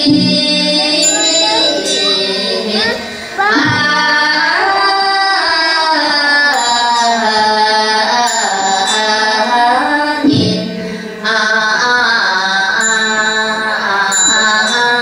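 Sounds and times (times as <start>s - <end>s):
person chanting: 0.0s - 15.0s.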